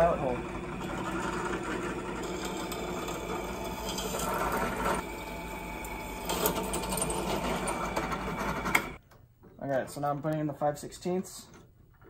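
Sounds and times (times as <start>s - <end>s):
drill bit cutting steel: 0.0s - 9.0s
drill press motor hum: 0.0s - 9.0s.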